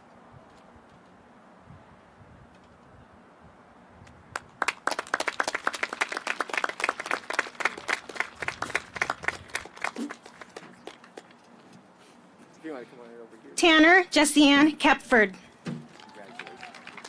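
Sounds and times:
people clapping: 0:04.3 - 0:11.5, 0:15.8 - 0:17.0.

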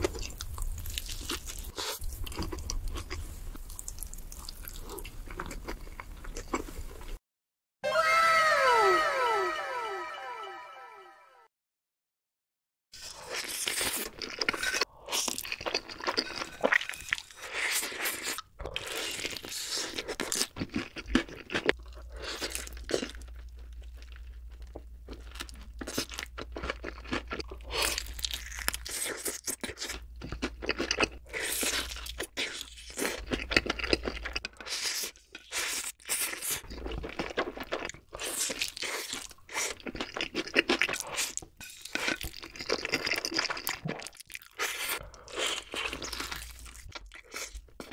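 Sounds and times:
crunching bites of fried chicken: 0:00.0 - 0:06.6, 0:17.5 - 0:47.9.

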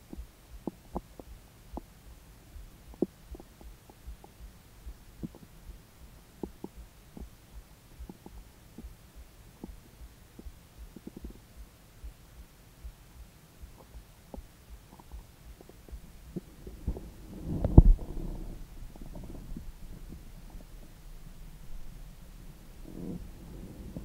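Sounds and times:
steady low pulse: 0:00.2 - 0:24.0.

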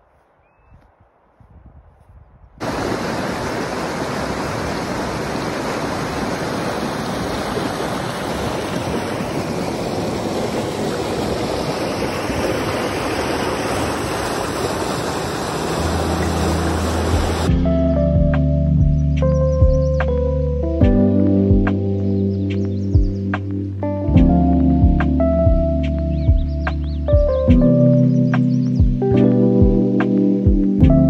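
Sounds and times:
water rushing over rocks: 0:02.6 - 0:17.5
music with low sustained notes: 0:15.8 - 0:31.0.

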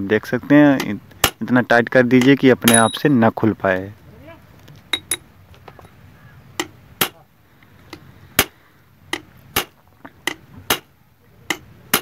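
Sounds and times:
hammer tapping metal: 0:02.7 - 0:03.2, 0:05.0 - 0:05.2.

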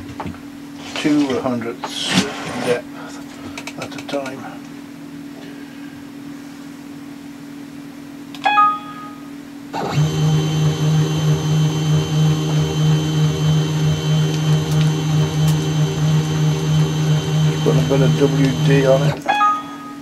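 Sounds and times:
mill motor pulsing hum and whine: 0:09.7 - 0:19.2.

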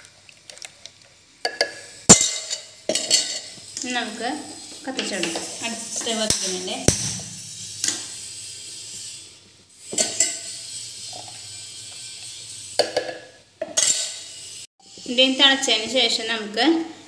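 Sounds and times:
utensils and cookware clinking: 0:01.4 - 0:08.2, 0:09.8 - 0:14.6.

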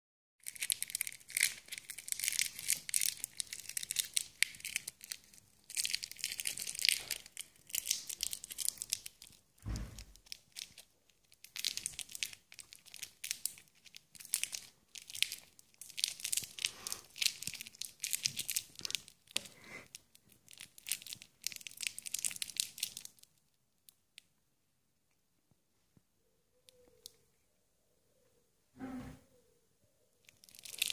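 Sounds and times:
plastic crinkling: 0:00.4 - 0:24.0, 0:30.2 - 0:30.9
low thump: 0:09.6 - 0:10.1.

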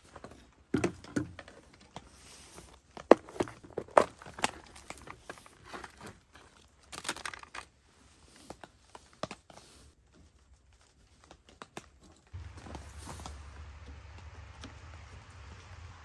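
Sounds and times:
plastic rustling: 0:02.2 - 0:11.5
lures rattling in plastic box: 0:03.2 - 0:07.8
low steady rumble: 0:12.4 - 0:16.0.

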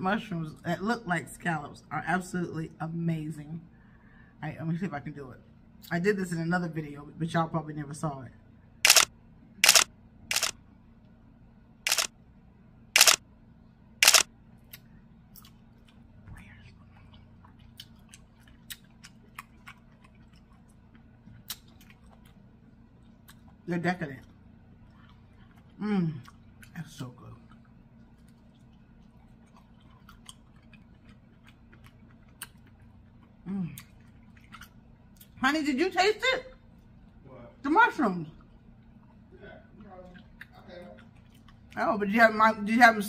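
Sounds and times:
low steady hum: 0:00.0 - 0:43.0
camera shutter snapping: 0:08.9 - 0:10.5, 0:11.9 - 0:12.1, 0:13.0 - 0:13.2, 0:14.0 - 0:14.2
mouth chewing wet clicks: 0:16.6 - 0:23.6, 0:24.2 - 0:35.4, 0:38.4 - 0:41.8.

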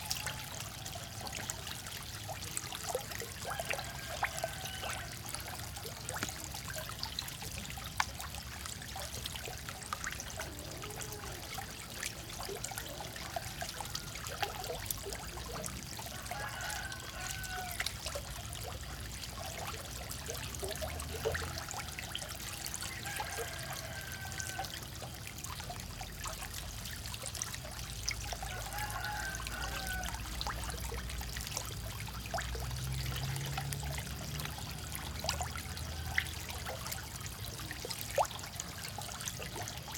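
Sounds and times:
water splashing and trickling: 0:00.0 - 0:39.9
small plops and clicks: 0:06.1 - 0:06.6.

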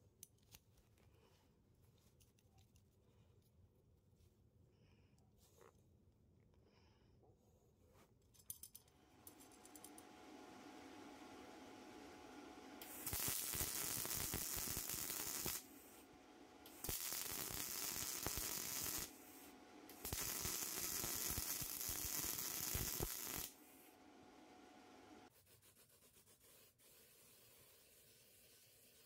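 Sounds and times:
electric arc welding crackling: 0:09.3 - 0:25.3.

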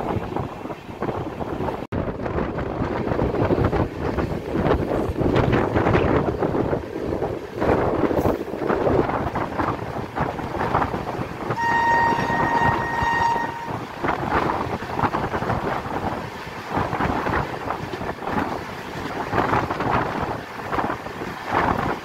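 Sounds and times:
train rumbling on rails: 0:00.0 - 0:22.0
wind buffeting microphone: 0:00.0 - 0:22.0
train horn blast: 0:11.6 - 0:13.9.

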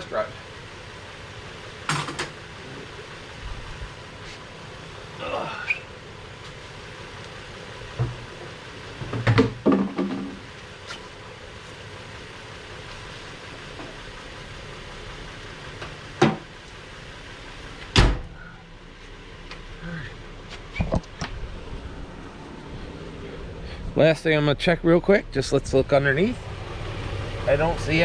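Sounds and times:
truck hood slamming shut: 0:17.9 - 0:18.2.

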